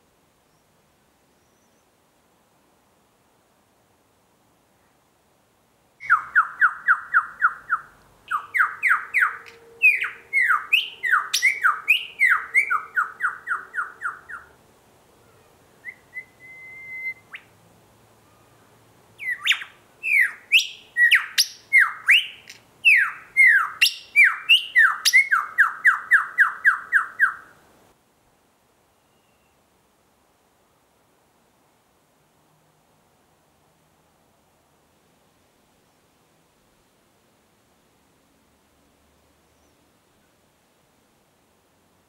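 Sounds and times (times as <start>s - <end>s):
lyrebird singing: 6.0s - 14.6s, 15.8s - 17.5s, 19.2s - 27.6s
thin whistle: 15.8s - 17.5s, 28.9s - 29.6s.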